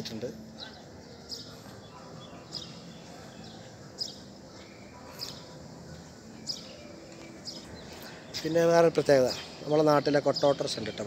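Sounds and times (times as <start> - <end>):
faint steady background noise: 0.0 - 11.0
small bird chirping: 0.6 - 11.0.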